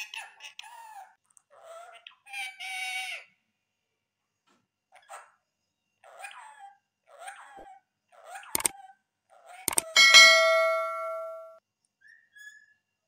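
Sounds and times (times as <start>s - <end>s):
sharp clicks: 9.7s - 11.5s
metallic bell ding: 9.7s - 11.6s.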